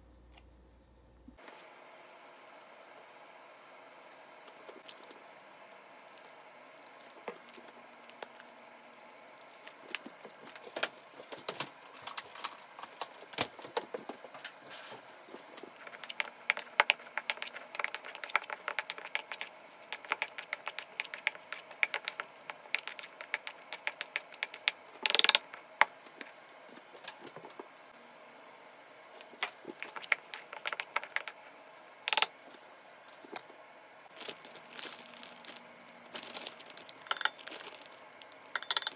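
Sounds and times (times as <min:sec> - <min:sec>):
hands mixing tofu in plastic bowl: 0:15.5 - 0:26.2, 0:29.7 - 0:31.5.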